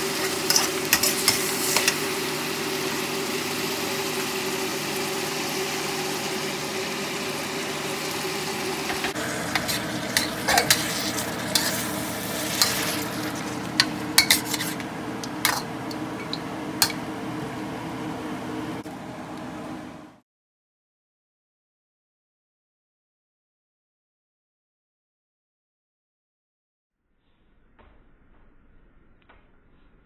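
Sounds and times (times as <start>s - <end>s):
metal spatula scraping a wok: 0.0s - 2.1s, 9.4s - 17.0s
food sizzling in a wok: 0.0s - 17.8s
steady hum: 0.0s - 20.2s.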